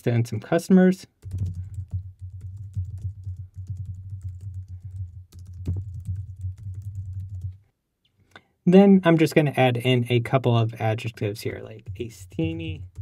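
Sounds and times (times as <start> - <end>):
typing on computer keyboard: 1.1 - 7.6.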